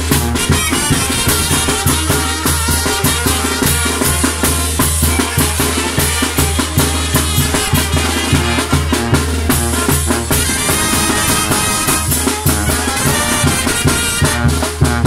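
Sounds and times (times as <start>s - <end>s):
brass band playing: 0.0s - 15.0s
snare bass drum and cymbal beat: 0.0s - 15.0s.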